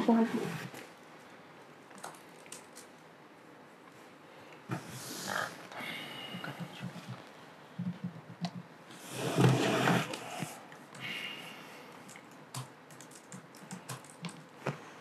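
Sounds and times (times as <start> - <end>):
laptop keyboard taps and clicks: 1.9 - 2.9, 6.7 - 8.7, 12.1 - 14.8
breathy rush of noise: 4.1 - 7.6.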